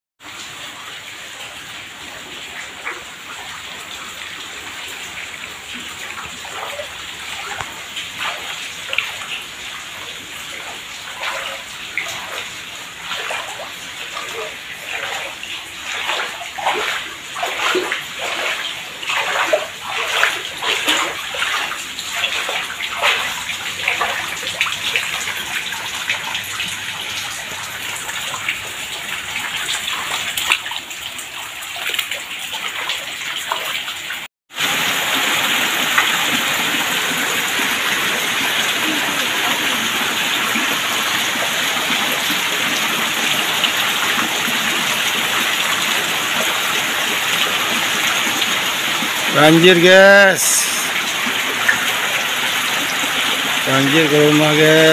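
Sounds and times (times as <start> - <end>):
water pouring off a roof: 0.2 - 54.9
heavy rain: 0.4 - 30.4, 34.5 - 54.9
footsteps splashing through water: 4.9 - 34.0.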